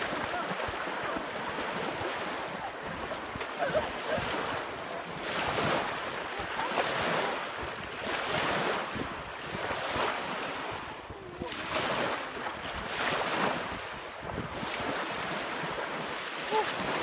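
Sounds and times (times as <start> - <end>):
people splashing through water: 0.0 - 17.0
waves breaking on beach: 0.0 - 17.0
wind buffeting microphone: 0.0 - 17.0.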